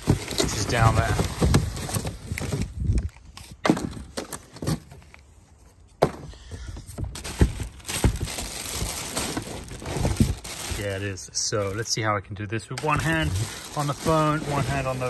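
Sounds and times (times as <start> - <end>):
plastic wrap rustling: 0.0 - 3.2, 7.0 - 12.0, 12.8 - 15.0
cardboard packaging handled: 0.0 - 5.8, 6.7 - 11.9, 12.8 - 15.0.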